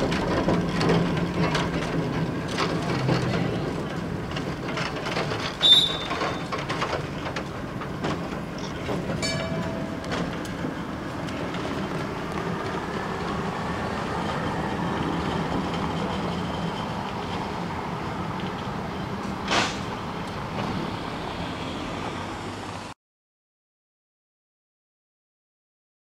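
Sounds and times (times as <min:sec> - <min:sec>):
tram wheels clicking on rails: 0:00.0 - 0:22.9
road traffic noise: 0:00.0 - 0:23.0
short sharp squeal: 0:05.6 - 0:06.5.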